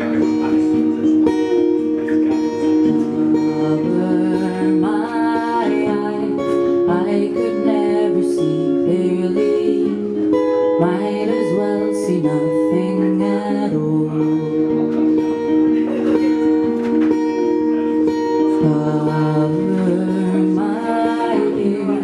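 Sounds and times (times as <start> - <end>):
acoustic guitar strumming: 0.0 - 22.0
woman singing: 3.4 - 15.0, 18.5 - 22.0.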